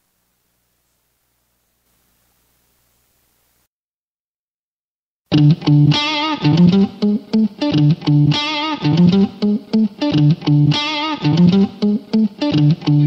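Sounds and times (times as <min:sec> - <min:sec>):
plucked guitar riff: 0:05.3 - 0:13.0.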